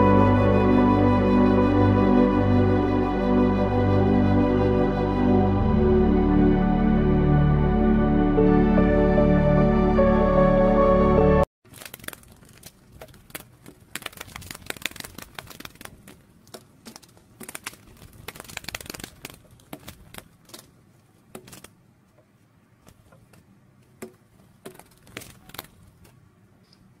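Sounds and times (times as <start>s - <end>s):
crackling and clicking: 11.6s - 26.8s.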